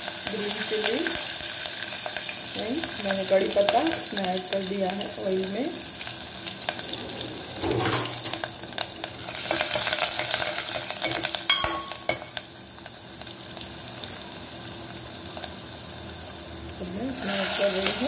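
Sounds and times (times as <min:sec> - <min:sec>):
spices sizzling in hot oil: 0:00.0 - 0:18.0
ladle scraping metal pot: 0:06.6 - 0:11.3.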